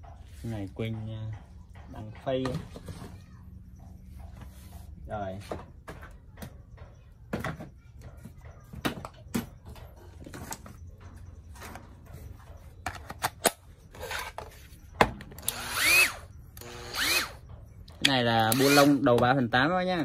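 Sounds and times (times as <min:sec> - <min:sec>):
tool parts clicking and knocking: 0:05.5 - 0:19.3.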